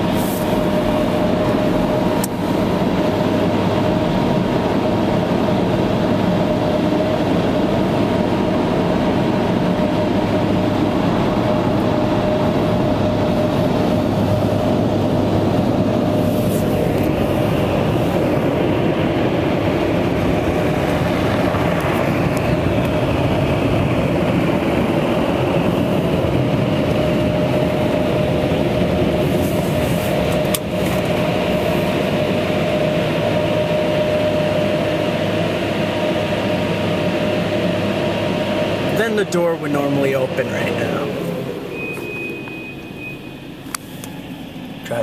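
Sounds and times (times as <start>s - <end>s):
car wash blower dryer running: 0.0s - 45.0s.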